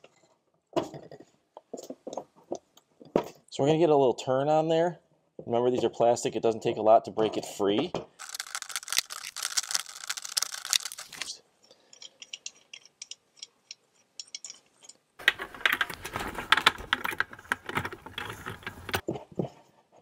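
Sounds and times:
hard plastic parts rattling: 8.2s - 11.3s, 15.2s - 19.1s.

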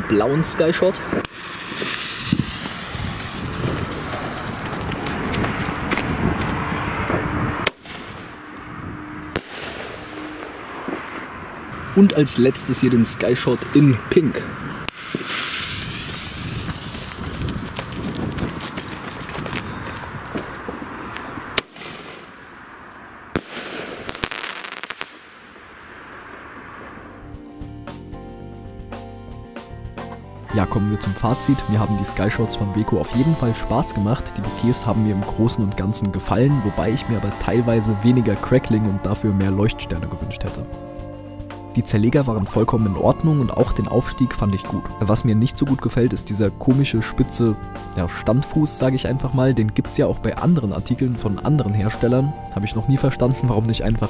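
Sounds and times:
firework crack: 1.1s - 8.7s, 9.3s - 12.8s, 14.4s - 27.2s
firework launch pop: 1.2s - 5.1s, 9.4s - 11.3s, 14.9s - 18.3s, 23.4s - 25.7s
firework fuse hissing: 1.2s - 8.5s, 14.5s - 22.6s, 23.4s - 26.9s.

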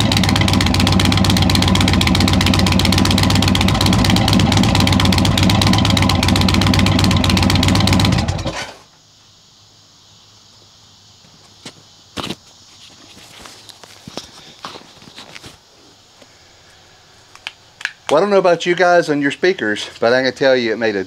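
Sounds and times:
motorcycle engine idling: 0.0s - 8.6s.

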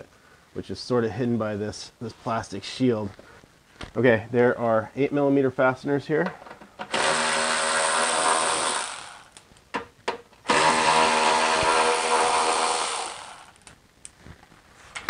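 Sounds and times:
electric ratchet motor whine: 6.9s - 9.3s, 10.5s - 13.6s.

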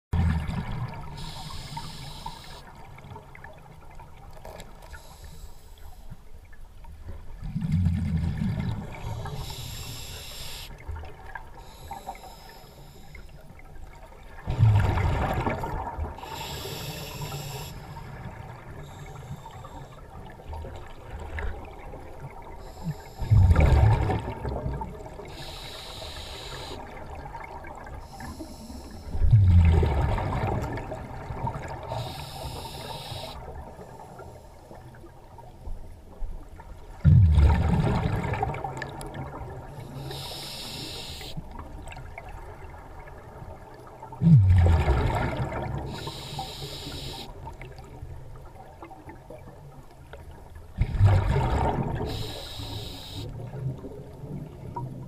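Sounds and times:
regulator hissing inhale: 1.2s - 2.7s, 4.9s - 6.1s, 9.1s - 10.8s, 11.6s - 13.4s, 16.2s - 18.1s, 18.8s - 20.0s, 22.6s - 23.3s, 25.3s - 26.9s, 28.0s - 29.2s, 31.9s - 34.6s, 39.8s - 41.4s, 45.9s - 47.4s, 52.0s - 53.4s
exhaled air bubbling: 7.4s - 12.2s, 14.3s - 34.1s, 36.9s - 49.1s, 50.8s - 55.0s.

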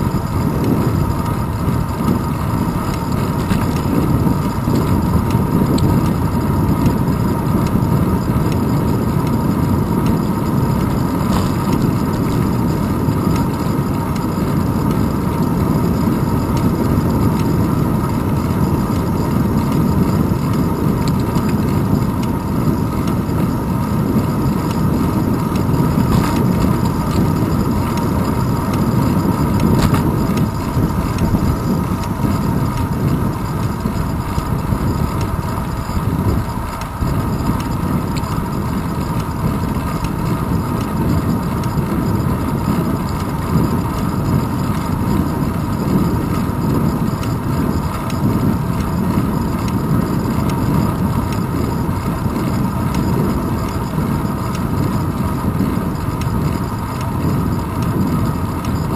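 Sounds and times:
wind buffeting and road vibration: 0.0s - 58.9s.

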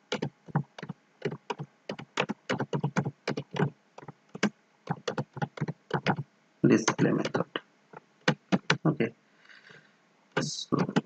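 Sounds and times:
computer keyboard typing: 0.0s - 6.2s, 6.8s - 7.4s, 8.2s - 8.8s, 10.4s - 11.0s.

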